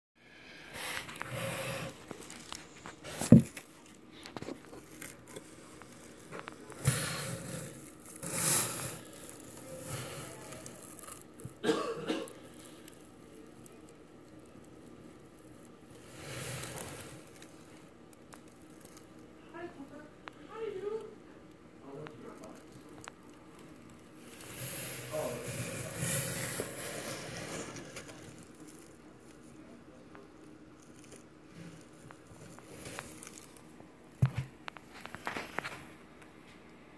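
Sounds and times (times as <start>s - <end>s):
larvae wet crackling and rustling: 0.8s - 36.7s
person clearing throat cough: 11.6s - 12.4s.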